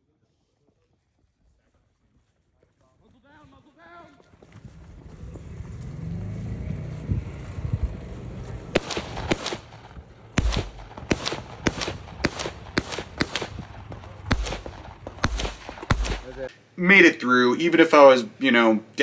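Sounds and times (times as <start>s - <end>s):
low rumble: 6.6s - 16.5s
rifle single shots: 8.7s - 16.5s.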